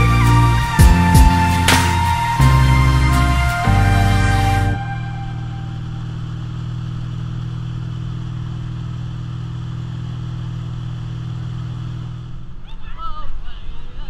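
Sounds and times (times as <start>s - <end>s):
boat engine humming: 0.0s - 14.0s.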